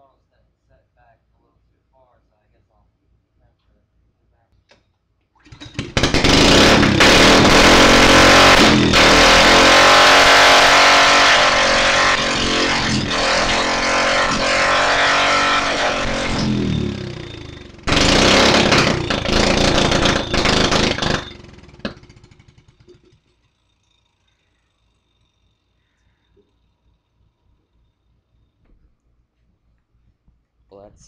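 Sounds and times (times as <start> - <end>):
go-kart petrol engine running: 5.4 - 28.6.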